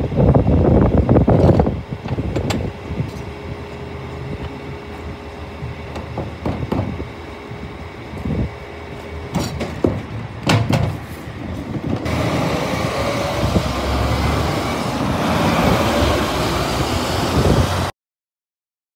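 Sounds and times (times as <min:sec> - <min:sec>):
truck engine running: 0:00.0 - 0:17.9
wheelie bin clattering: 0:09.2 - 0:12.1
truck driving past: 0:12.0 - 0:17.9.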